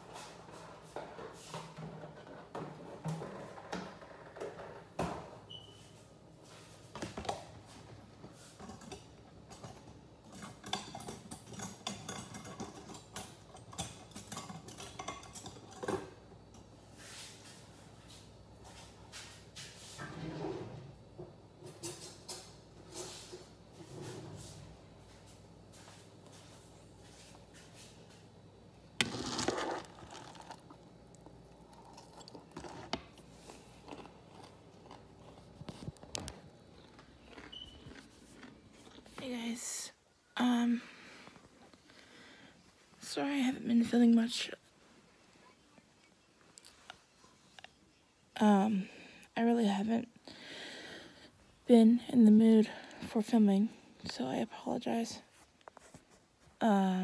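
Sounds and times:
dishes and utensils clinking: 0:08.6 - 0:16.7
noisy crunching: 0:29.0 - 0:39.2.

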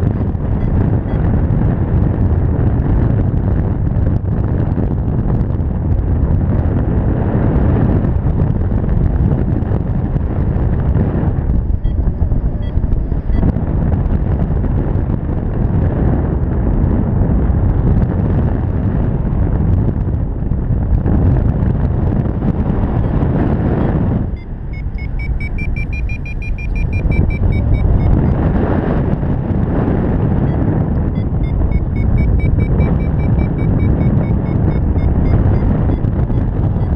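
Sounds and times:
variometer beeping: 0:00.0 - 0:02.3, 0:09.7 - 0:14.8, 0:22.1 - 0:36.9
wind buffeting microphone: 0:00.0 - 0:36.9.

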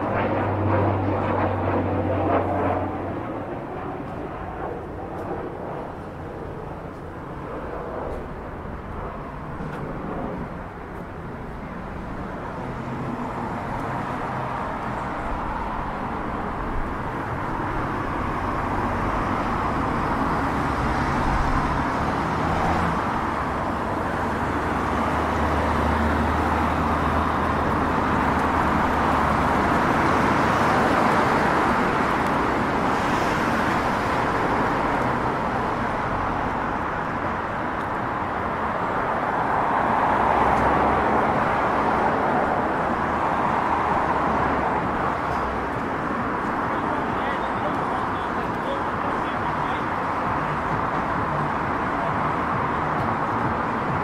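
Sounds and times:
low engine hum: 0:00.0 - 0:33.0
vehicles driving past: 0:00.0 - 0:54.0.

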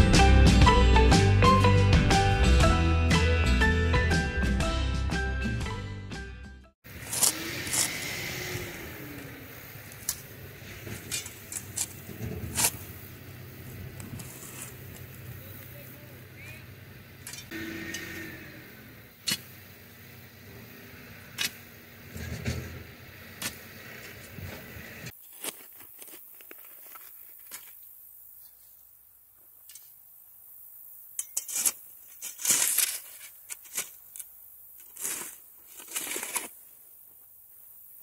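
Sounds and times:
shovel scraping dirt and stones: 0:06.8 - 0:15.8, 0:17.2 - 0:19.8, 0:21.2 - 0:28.8, 0:31.1 - 0:37.1
digging bar striking stony soil: 0:06.9 - 0:08.5, 0:09.9 - 0:13.1, 0:19.2 - 0:19.6, 0:21.2 - 0:27.8, 0:31.1 - 0:36.6.

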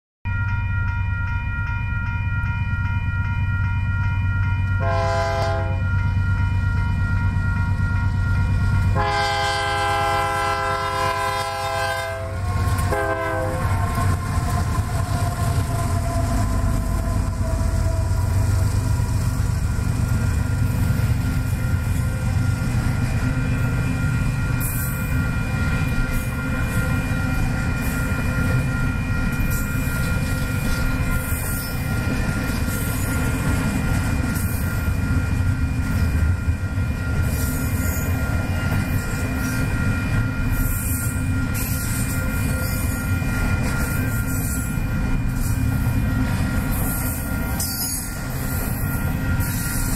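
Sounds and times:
freight train rumbling past: 0:00.3 - 0:49.9
train horn blasts: 0:04.8 - 0:05.9, 0:08.9 - 0:15.1.

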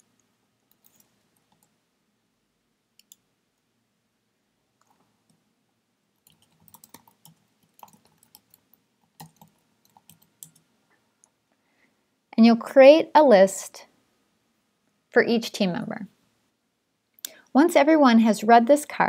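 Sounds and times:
faint keyboard typing: 0:00.0 - 0:01.8, 0:02.9 - 0:03.7, 0:04.8 - 0:05.5, 0:06.2 - 0:11.4.

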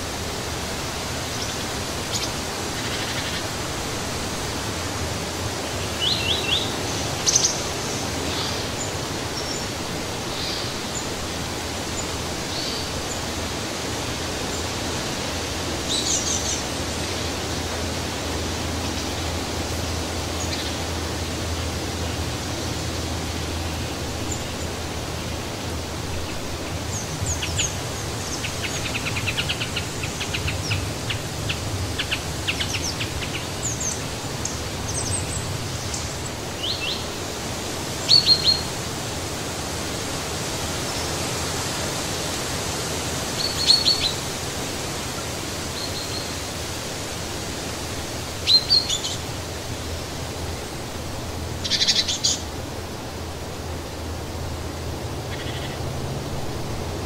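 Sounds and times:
wind in the trees: 0:00.0 - 0:57.0
small birds chirping: 0:00.9 - 0:04.0, 0:04.8 - 0:38.9, 0:43.2 - 0:46.6, 0:48.3 - 0:49.7, 0:51.6 - 0:52.6, 0:55.2 - 0:55.9.

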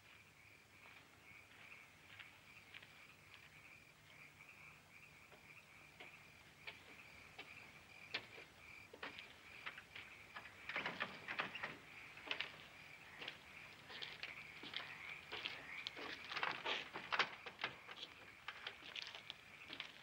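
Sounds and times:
crickets chirping: 0:00.1 - 0:20.0
footsteps on wooden planks: 0:05.3 - 0:20.0.

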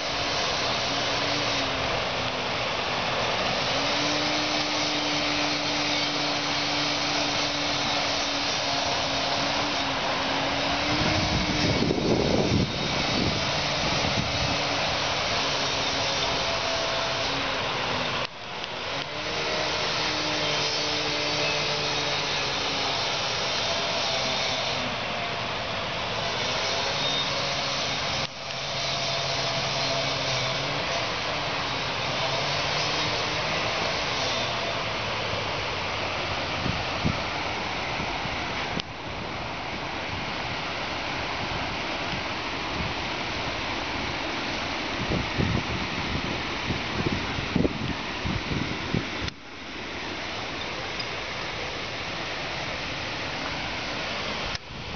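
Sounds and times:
water rushing down spillway: 0:00.0 - 0:54.9
wind buffeting microphone: 0:10.6 - 0:15.4, 0:44.8 - 0:49.4.

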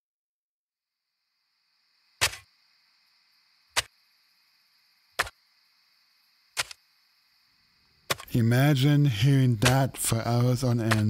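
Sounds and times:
faint hiss: 0:01.0 - 0:10.9
shovel striking ground: 0:02.2 - 0:02.5, 0:05.2 - 0:05.4, 0:06.6 - 0:06.8, 0:08.1 - 0:08.3, 0:09.6 - 0:10.0, 0:10.8 - 0:11.0.

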